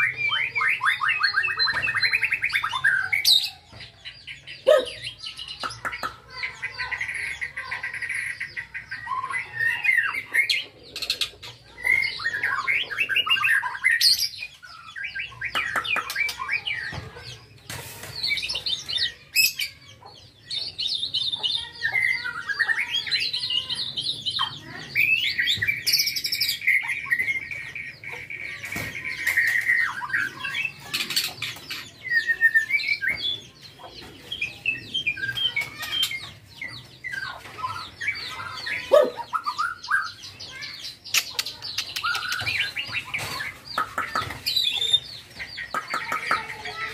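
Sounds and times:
bird singing whistles and warbles: 0.0s - 3.5s, 9.0s - 17.1s, 24.2s - 33.5s, 34.4s - 45.0s.

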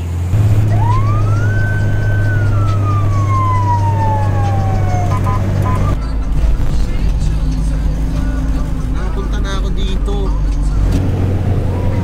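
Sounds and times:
low vehicle drone: 0.0s - 12.0s
ambulance siren wailing: 0.4s - 6.0s, 11.3s - 12.0s
siren blips: 0.4s - 6.0s.

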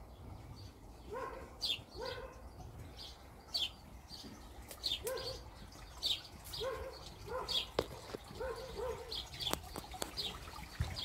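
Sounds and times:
small birds chirping: 0.0s - 11.0s
dog barking: 1.1s - 2.4s, 5.0s - 5.4s, 6.6s - 7.7s, 8.3s - 9.2s.

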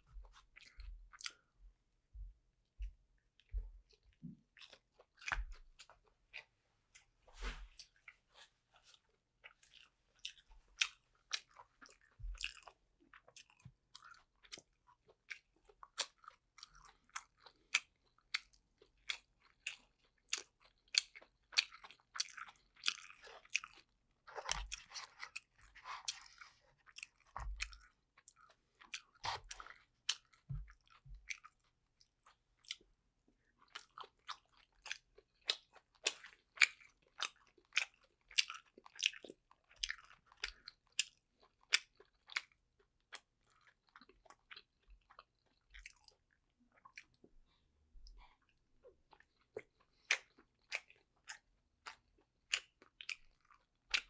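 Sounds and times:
wet chewing mouth clicks: 33.6s - 54.0s.

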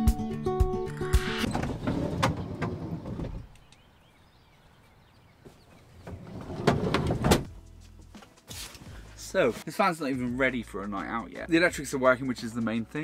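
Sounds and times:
van door and body rattling: 1.5s - 3.5s, 5.9s - 7.5s.

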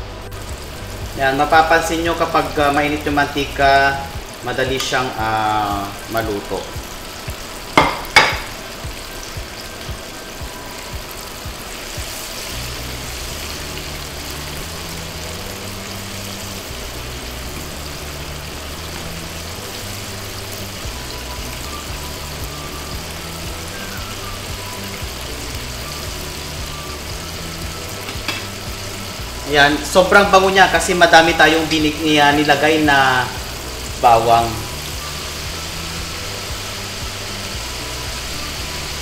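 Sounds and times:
background music with bass line: 0.0s - 39.0s
chicken wings deep-frying in oil: 0.2s - 39.0s.

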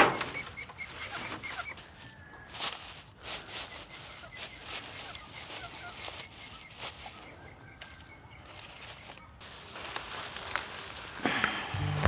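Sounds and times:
chickens clucking: 0.0s - 9.4s
cut grass rustling: 0.0s - 12.0s.

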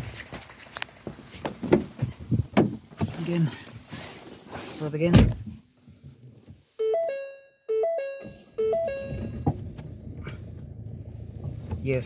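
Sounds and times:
dashboard warning chime: 6.8s - 9.4s
diesel engine running: 8.5s - 12.0s.

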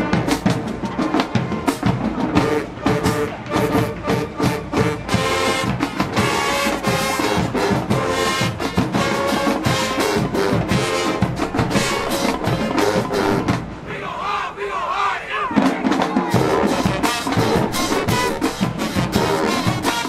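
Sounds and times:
drumline beat: 0.0s - 20.0s
brass horns playing chords: 2.3s - 13.9s, 16.3s - 20.0s.

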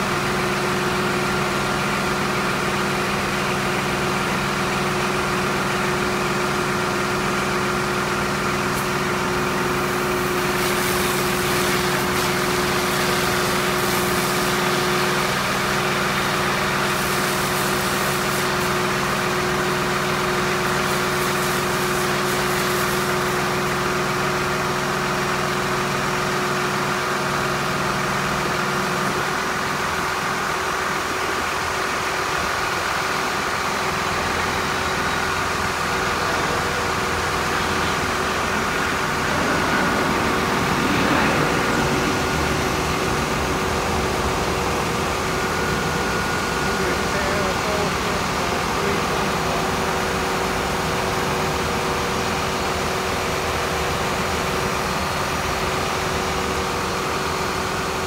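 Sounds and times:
truck engine running: 0.0s - 58.0s
fluid spraying hiss: 9.7s - 15.3s, 16.7s - 19.1s, 20.3s - 23.6s.

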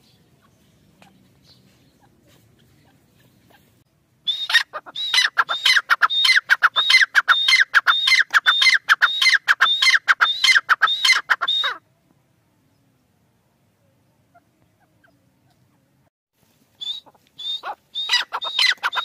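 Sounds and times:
francolin calling: 4.3s - 11.8s, 16.8s - 19.0s.

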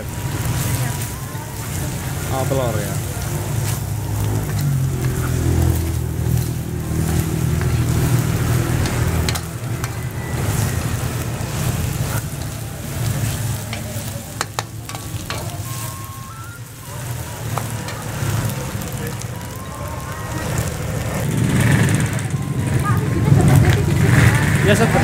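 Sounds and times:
rice sizzling in a wok: 0.0s - 25.0s
metal spatula scraping a wok: 1.9s - 16.1s
low rumble: 2.9s - 25.0s
spatula clinking against wok: 8.8s - 10.8s, 13.2s - 16.0s.

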